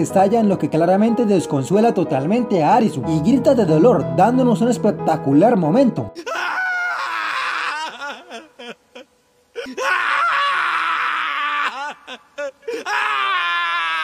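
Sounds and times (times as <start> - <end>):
gasping sobs: 6.2 - 10.4, 11.0 - 13.7
young man screaming and wailing: 6.2 - 14.0.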